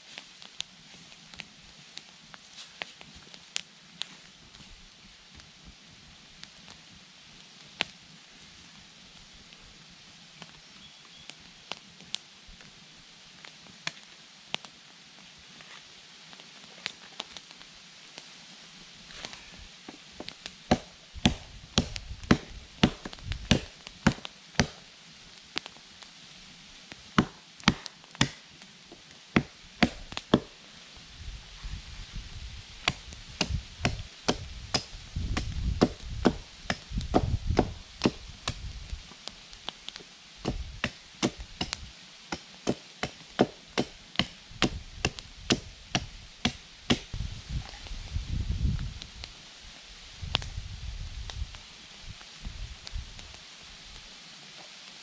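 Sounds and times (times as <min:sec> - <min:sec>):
wood being chopped: 0:20.2 - 0:24.8, 0:27.2 - 0:28.4, 0:29.4 - 0:30.6, 0:32.9 - 0:38.6, 0:40.4 - 0:47.1.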